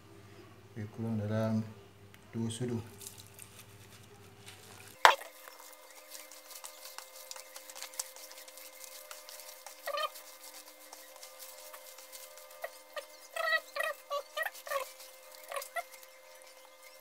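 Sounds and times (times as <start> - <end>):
wet crackles and squelches: 2.9 - 17.0.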